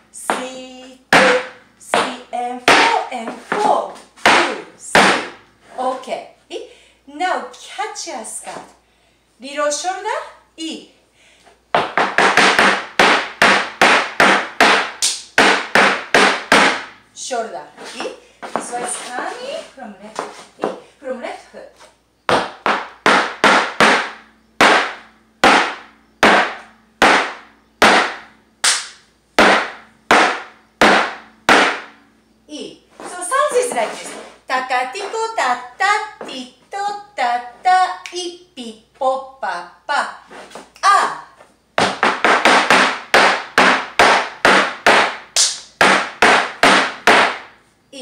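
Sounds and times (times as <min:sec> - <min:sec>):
flamenco shoes stamping on wood: 0:01.1 - 0:05.3, 0:11.8 - 0:16.9, 0:22.3 - 0:28.8, 0:29.4 - 0:31.9, 0:41.8 - 0:45.2, 0:45.8 - 0:47.5.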